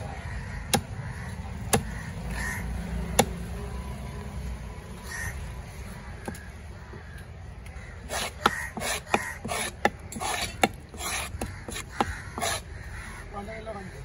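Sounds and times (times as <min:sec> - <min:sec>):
knife scraping wooden block: 0:08.0 - 0:12.7
blade knocking on wood: 0:08.4 - 0:12.6.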